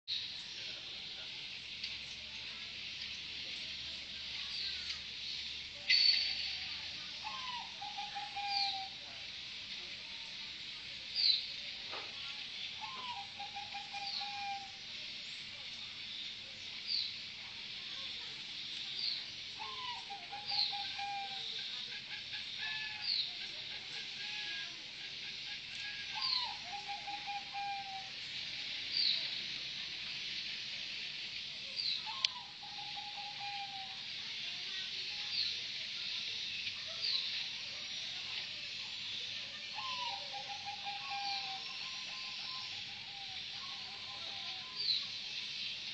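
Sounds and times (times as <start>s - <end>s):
steady high hiss: 0.1s - 45.9s
dove cooing: 7.2s - 9.0s, 26.1s - 28.1s, 32.1s - 34.0s, 39.8s - 44.7s.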